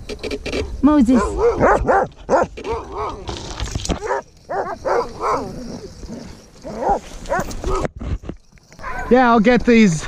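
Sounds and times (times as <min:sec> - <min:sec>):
dogs whining and yipping: 0:01.2 - 0:03.3, 0:04.0 - 0:07.9, 0:08.8 - 0:09.1.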